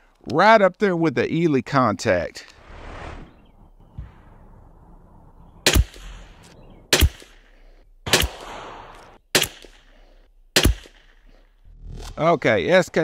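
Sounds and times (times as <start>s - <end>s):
rifle shots with echo: 5.6s - 9.9s, 10.6s - 11.2s.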